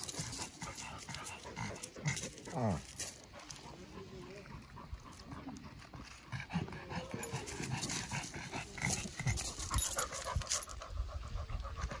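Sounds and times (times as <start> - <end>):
dog panting heavily: 0.0 - 2.4, 3.2 - 12.0.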